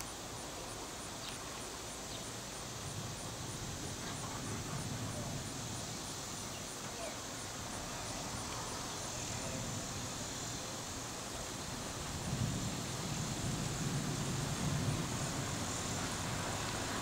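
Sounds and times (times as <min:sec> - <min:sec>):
wind buffeting microphone: 0:11.6 - 0:17.0.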